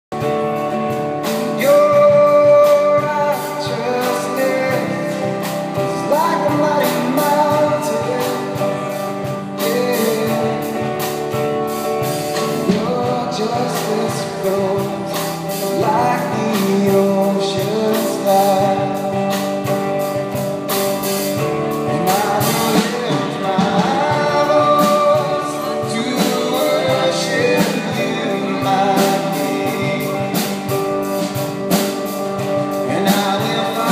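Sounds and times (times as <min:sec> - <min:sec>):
electric guitar: 0:00.1 - 0:33.9
gospel band playing: 0:00.1 - 0:33.9
man singing lead: 0:00.9 - 0:33.9.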